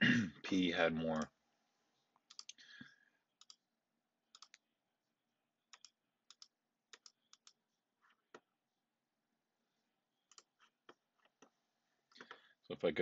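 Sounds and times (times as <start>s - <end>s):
computer mouse clicks: 2.2s - 2.6s, 3.4s - 3.6s, 4.3s - 4.6s, 5.7s - 7.6s, 10.3s - 11.4s.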